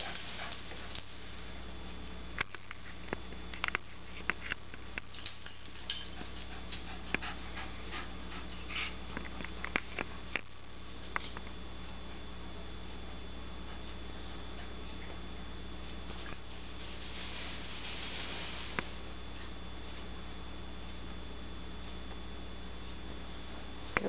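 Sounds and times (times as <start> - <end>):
dog panting: 0.0 - 1.0, 6.0 - 9.2.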